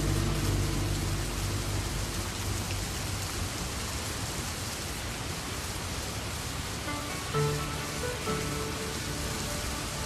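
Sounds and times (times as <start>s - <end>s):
low musical tone: 0.0s - 3.6s, 6.8s - 10.0s
steady rain: 0.0s - 10.0s.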